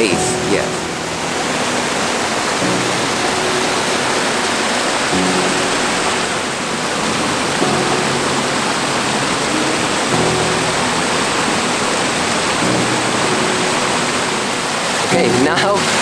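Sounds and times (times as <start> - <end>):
soft background music: 0.0 - 16.0
water rushing over rocks: 0.0 - 16.0.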